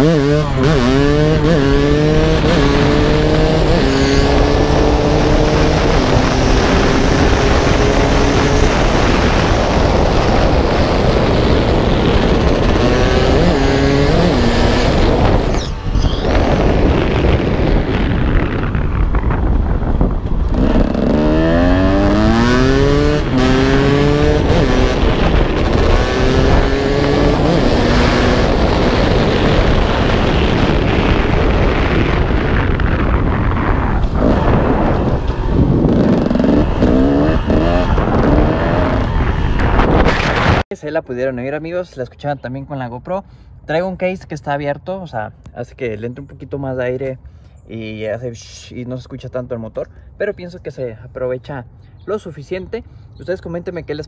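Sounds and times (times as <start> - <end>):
motorcycle engine revving through gears: 0.0 - 19.4, 20.0 - 40.6
wind rush: 0.0 - 40.7.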